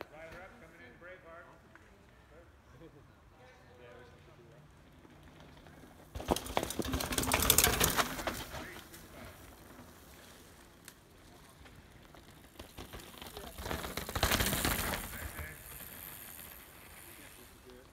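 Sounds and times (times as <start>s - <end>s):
bikes rattling: 4.7s - 17.9s
bike tyres crunching over rocks: 5.2s - 17.9s.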